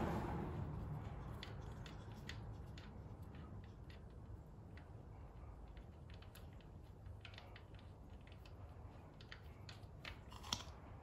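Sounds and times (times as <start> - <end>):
small objects clicking and tapping: 5.6 - 11.0.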